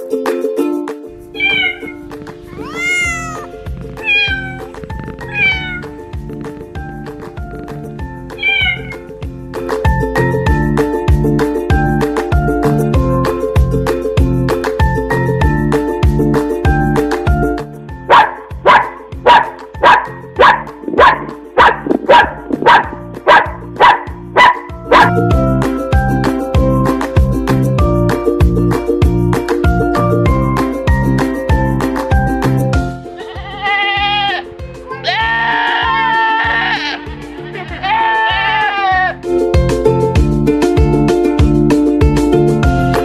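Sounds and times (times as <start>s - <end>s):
background music with steady beat: 0.0s - 43.0s
cat meowing: 1.3s - 6.0s, 8.2s - 9.1s, 33.2s - 37.0s
dog barking: 18.1s - 25.3s.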